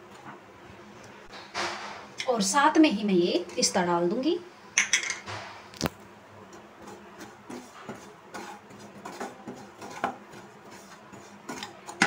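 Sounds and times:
spatula scraping a pan: 6.5s - 12.0s.

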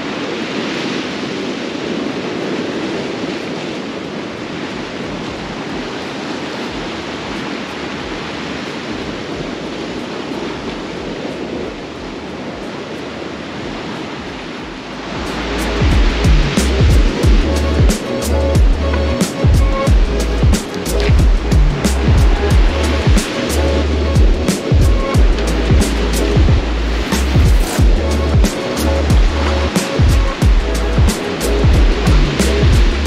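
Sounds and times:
sea surf on rocky shore: 0.0s - 33.0s.

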